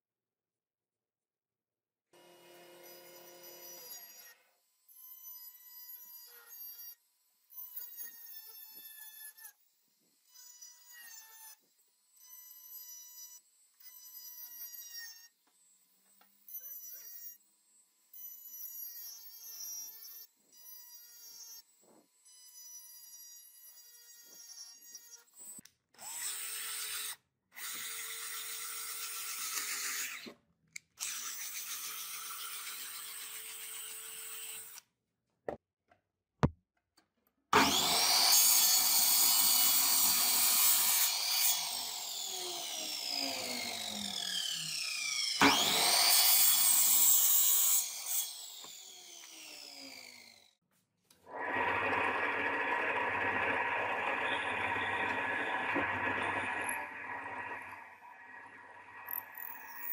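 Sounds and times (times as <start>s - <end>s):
rotary tool whining on metal: 2.6s - 34.8s, 37.6s - 50.6s, 51.2s - 59.9s
mitre saw cutting wood: 31.0s - 34.8s, 37.5s - 50.6s, 51.2s - 59.9s
power tool whining: 37.6s - 50.6s, 51.3s - 59.9s.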